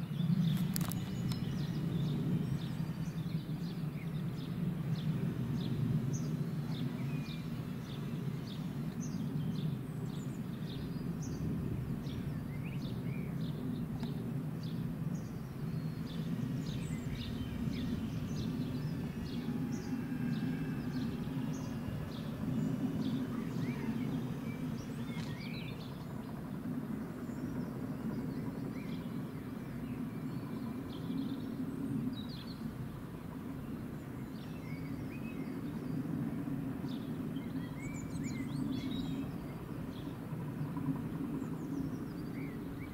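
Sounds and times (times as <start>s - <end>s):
steady low rumble: 0.0s - 42.9s
small birds chirping: 0.1s - 32.8s.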